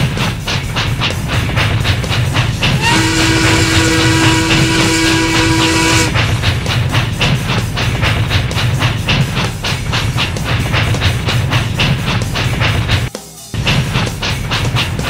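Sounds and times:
steam locomotive chuffing: 0.0 - 15.0
steam whistle blast: 2.6 - 6.2.

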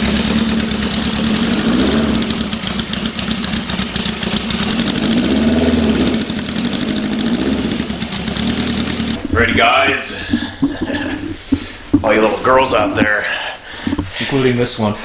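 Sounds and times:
motorcycle engine idling and revving: 0.0 - 9.4.

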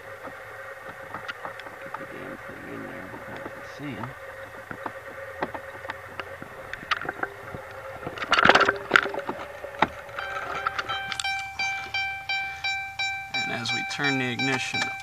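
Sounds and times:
key clicking in ignition: 10.2 - 15.0.

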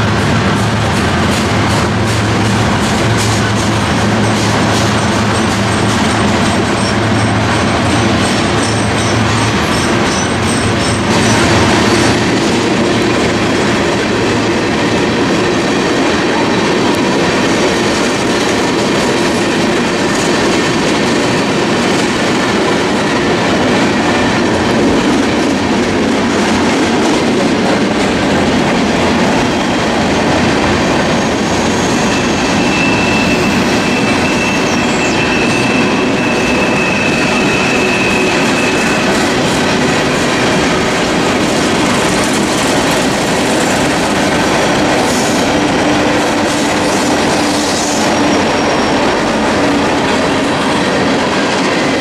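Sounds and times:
freight train wheels on rails: 0.0 - 52.0
high wheel squeal: 4.3 - 12.0, 30.8 - 39.9, 45.2 - 50.7.

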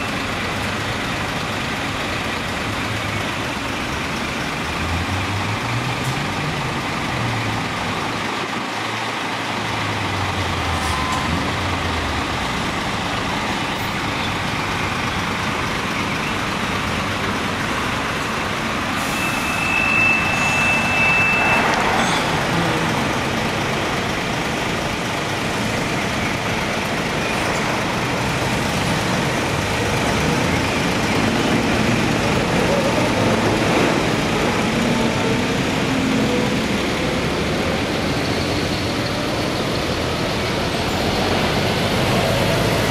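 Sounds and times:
truck diesel engines: 0.0 - 42.9
high squeal: 10.7 - 11.5, 19.0 - 22.6.

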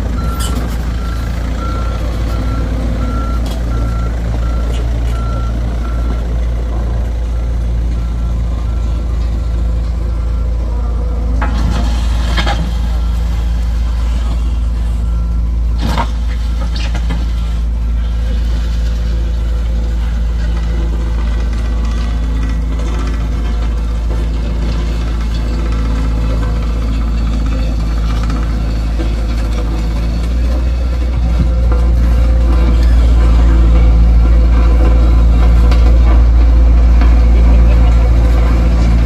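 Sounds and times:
heavy engine running: 0.0 - 39.0
reversing alarm beeps: 0.2 - 6.2.

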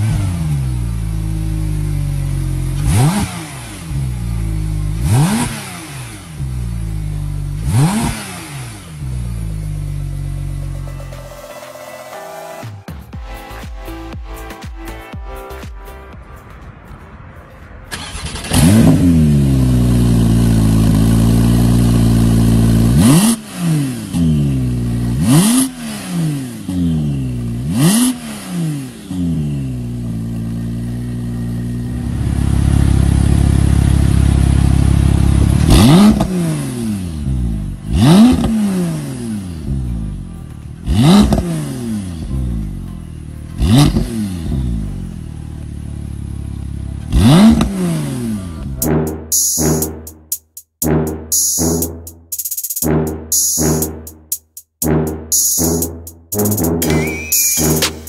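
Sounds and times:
car engine starting and idling: 0.0 - 12.6, 16.2 - 50.2
engine throttle blips: 17.9 - 58.0.

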